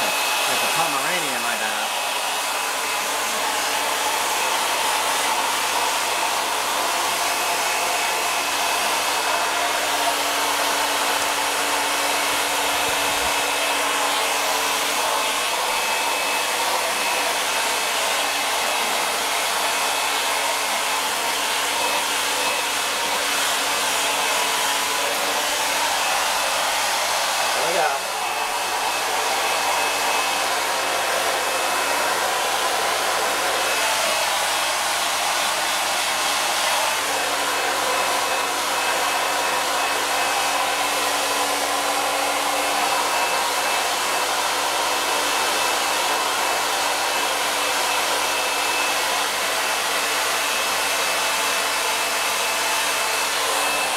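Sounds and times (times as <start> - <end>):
hair dryer running: 0.0 - 53.9.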